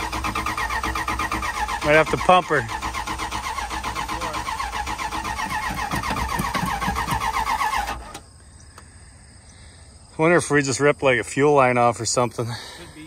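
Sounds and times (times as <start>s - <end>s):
engine cranking on starter: 0.0s - 8.3s.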